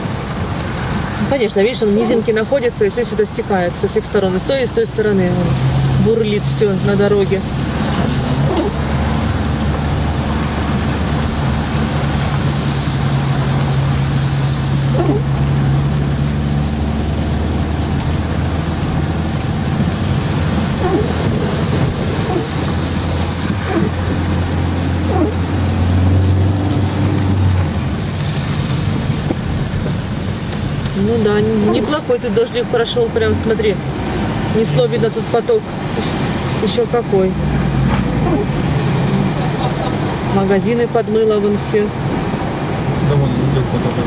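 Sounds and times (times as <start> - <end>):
car engine hum: 0.0 - 44.0
rain on windscreen: 0.0 - 44.0
tyres splashing through water: 0.0 - 44.0.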